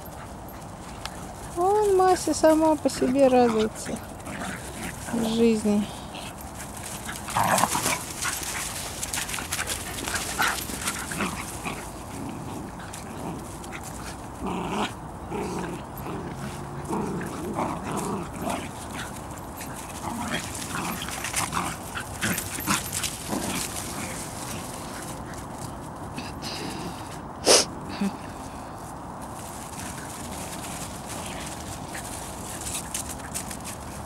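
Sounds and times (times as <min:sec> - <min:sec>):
dogs play-fighting vocalising: 0:00.0 - 0:01.6, 0:02.4 - 0:26.4, 0:29.4 - 0:34.0
clicks and rustles: 0:06.2 - 0:14.3, 0:17.3 - 0:26.2, 0:29.2 - 0:34.0.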